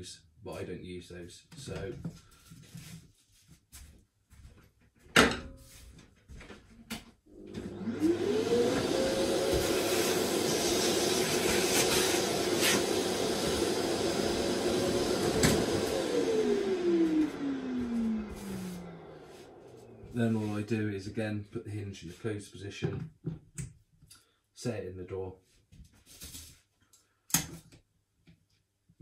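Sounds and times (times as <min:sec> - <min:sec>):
vacuum motor whining: 0:07.3 - 0:20.2.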